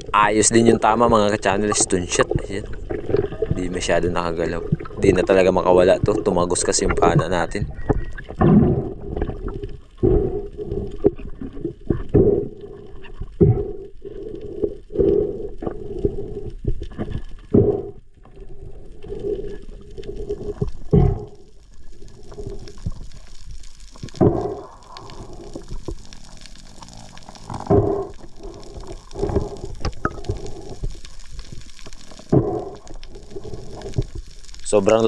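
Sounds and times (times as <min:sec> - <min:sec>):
water gushes and thumps: 0:00.0 - 0:10.2, 0:16.6 - 0:18.4, 0:19.6 - 0:35.0
underwater moving water and bubbling: 0:00.0 - 0:35.0.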